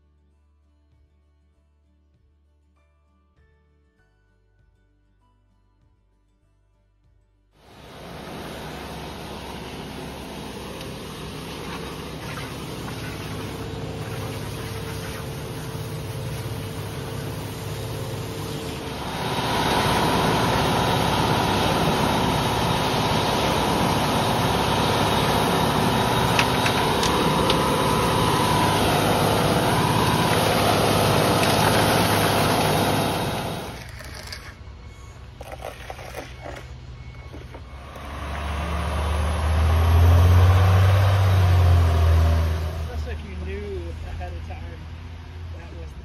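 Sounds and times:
truck diesel engine running: 7.6s - 33.9s, 36.7s - 45.1s
steady whine: 7.6s - 40.2s.

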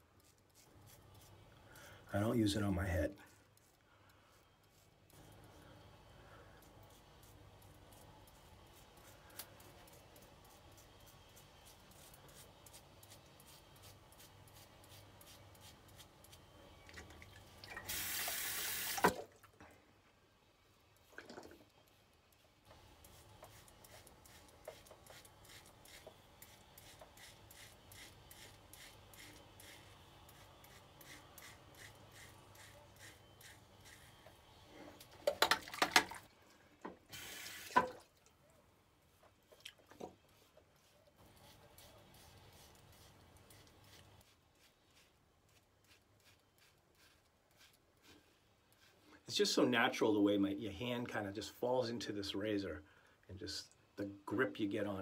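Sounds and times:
razor scraping stubble: 0.2s - 1.5s, 22.8s - 35.1s, 40.3s - 49.0s.

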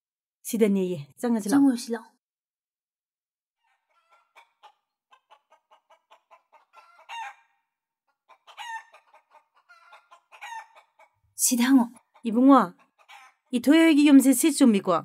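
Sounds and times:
loud chicken call: 3.6s - 11.2s, 12.0s - 13.5s
chickens clucking: 3.6s - 14.2s.

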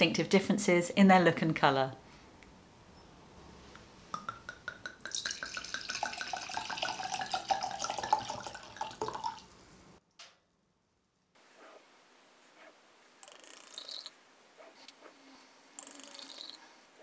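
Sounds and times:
wine gurgling into glass: 5.0s - 9.5s.

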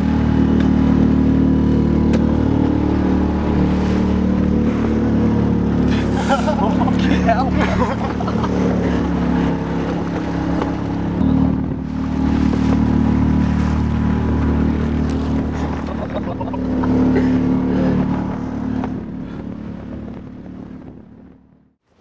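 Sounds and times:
motorboat engine running: 0.0s - 21.8s.

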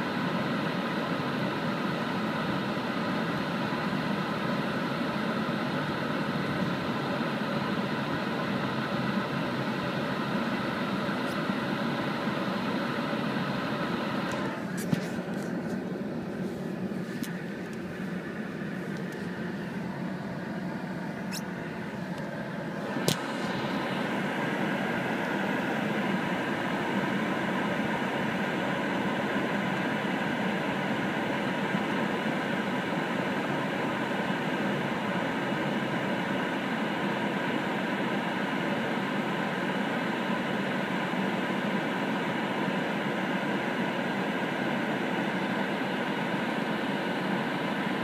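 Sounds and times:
car cabin road noise: 1.8s - 30.0s.

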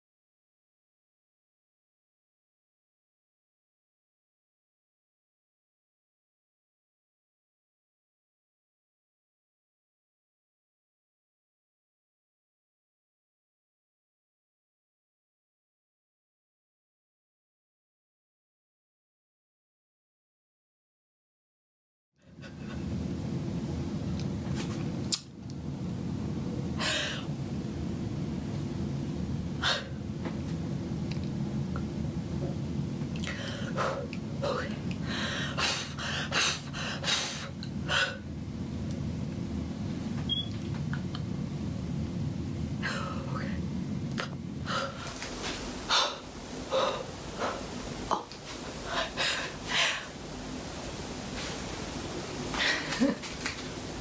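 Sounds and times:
steady low hum: 22.2s - 54.0s
woman breathing in puffs: 35.0s - 38.3s, 44.6s - 45.2s, 45.9s - 47.8s, 48.5s - 50.2s.

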